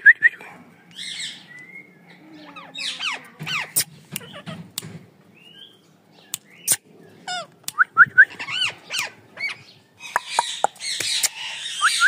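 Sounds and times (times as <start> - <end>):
parakeets calling: 1.0 - 4.8, 8.3 - 12.0.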